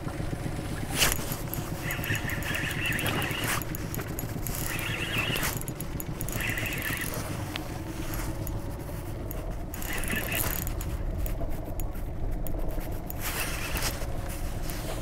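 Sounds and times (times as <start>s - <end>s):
low rumble of wind and water: 0.0s - 15.0s
fishing reel whirring: 0.9s - 15.0s.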